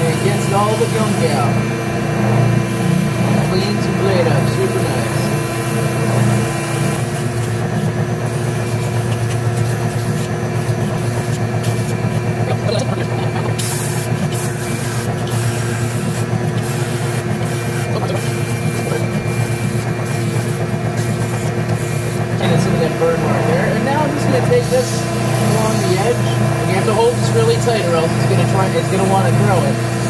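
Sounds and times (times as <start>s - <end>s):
spindle sander sanding wood: 0.0s - 30.0s.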